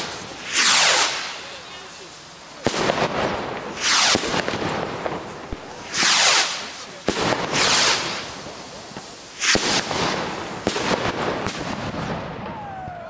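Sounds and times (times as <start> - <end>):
rocket launch hisses: 0.0 - 2.9, 3.6 - 4.5, 5.2 - 11.8
fireworks bangs: 0.0 - 13.0
fireworks crackling: 0.0 - 13.0.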